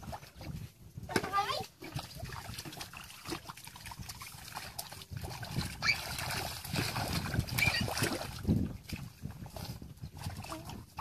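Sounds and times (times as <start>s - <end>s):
muddy water splashing and sloshing: 0.0s - 11.0s.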